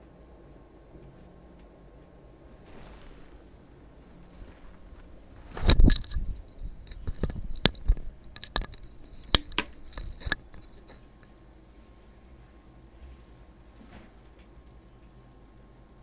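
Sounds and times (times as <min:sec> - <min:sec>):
clicks and light rattles: 0:05.6 - 0:11.3.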